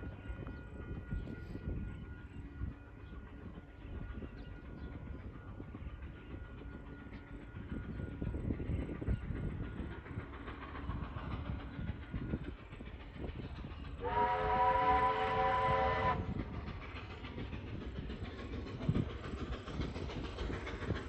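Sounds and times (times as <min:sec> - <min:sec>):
train rumbling on rails: 0:00.0 - 0:21.0
train whistle: 0:14.0 - 0:16.4.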